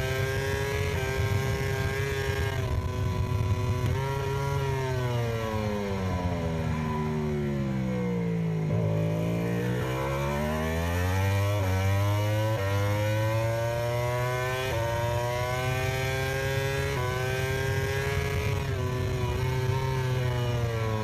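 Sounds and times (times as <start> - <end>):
motorcycle engine accelerating: 0.0 - 21.0.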